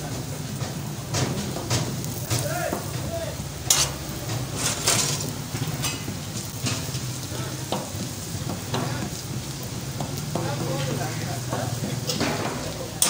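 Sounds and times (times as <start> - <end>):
flatbread sizzling on a griddle: 0.0 - 13.0
metal tongs scraping a griddle: 3.6 - 9.2, 10.3 - 13.0.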